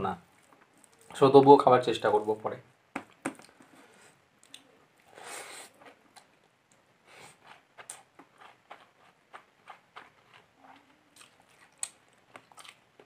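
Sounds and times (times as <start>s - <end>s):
breaths through the nose: 5.1s - 5.8s
chewing food: 5.7s - 13.0s.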